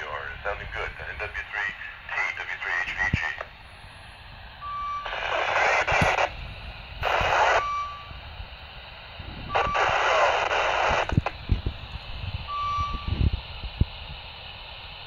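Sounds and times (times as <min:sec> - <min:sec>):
radio static hiss: 0:00.0 - 0:15.0
short single-pitch beeps: 0:07.6 - 0:08.2, 0:12.5 - 0:13.2.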